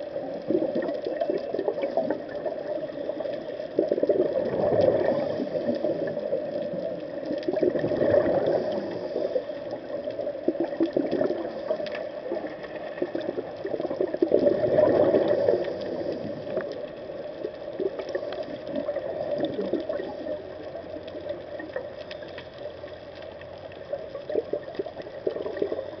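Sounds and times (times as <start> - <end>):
underwater bubbling breath: 0.0 - 23.0, 23.9 - 26.0.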